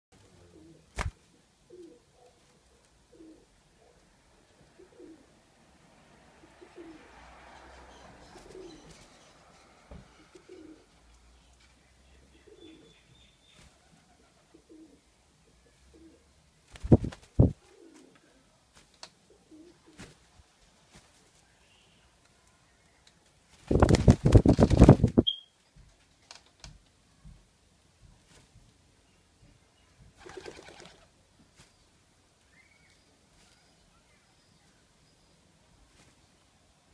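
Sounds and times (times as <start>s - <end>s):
dove cooing: 0.3s - 0.9s, 1.7s - 2.1s, 3.1s - 4.0s, 4.7s - 5.3s, 6.4s - 7.2s, 8.4s - 9.0s, 10.2s - 10.9s, 13.8s - 15.0s, 17.6s - 18.4s, 19.3s - 19.9s.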